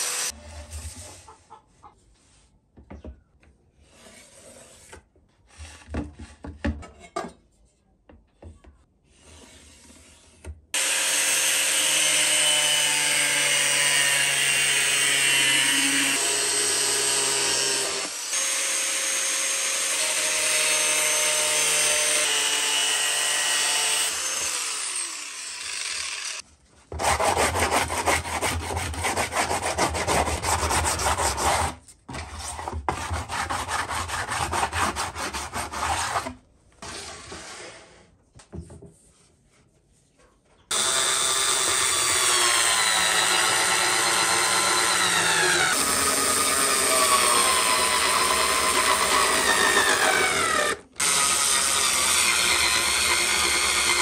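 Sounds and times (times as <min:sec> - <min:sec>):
angle grinder cutting plastic pipe: 0:00.0 - 0:00.8, 0:10.8 - 0:36.4, 0:40.7 - 0:54.0.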